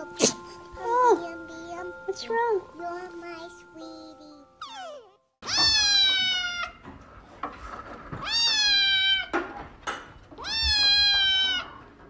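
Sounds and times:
kitten meowing: 4.6 - 6.8, 8.2 - 9.3, 10.4 - 11.8.

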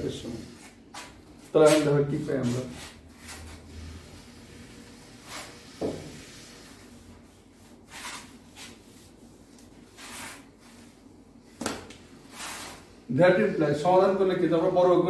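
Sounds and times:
duster wiping whiteboard: 0.0 - 11.2, 12.2 - 13.0.

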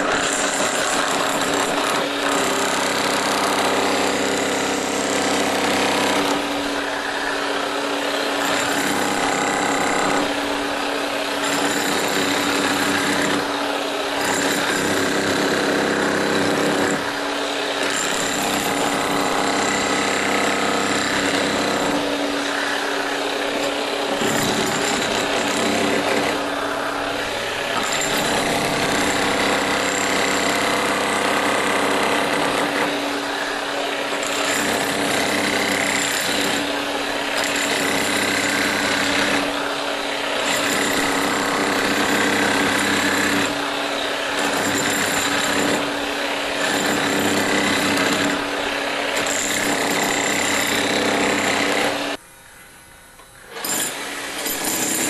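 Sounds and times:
hammer drill boring into brick: 0.0 - 52.2, 53.5 - 55.0.

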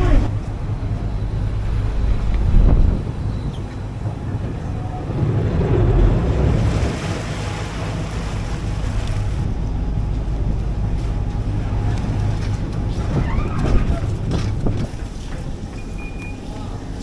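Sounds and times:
wind buffeting microphone: 0.0 - 16.1
ferry engines droning: 0.0 - 17.0
propeller wash churning water: 3.8 - 17.0.

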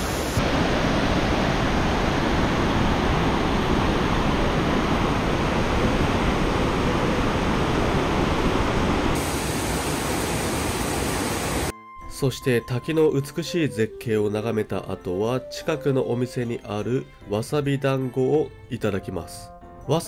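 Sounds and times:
waterfall rushing: 0.0 - 11.7.

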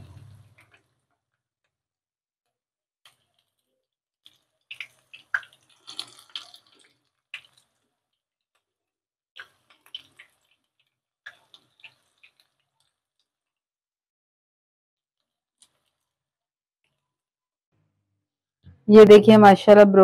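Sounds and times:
oil crackling and spattering: 3.0 - 8.8, 9.4 - 13.6, 15.2 - 17.0.

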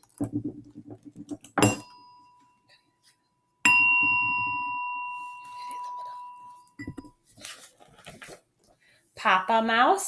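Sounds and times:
bell-like chime ringing: 1.6 - 2.8, 3.7 - 7.1.

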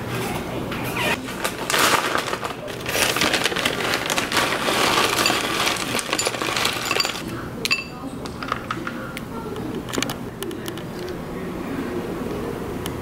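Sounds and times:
bag rustling and crinkling: 1.2 - 7.2.

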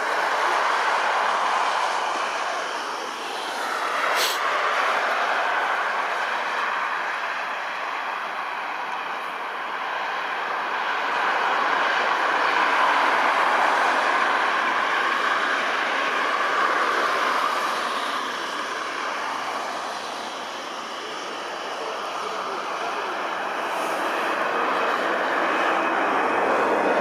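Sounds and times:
jet engine roar: 0.0 - 27.0.

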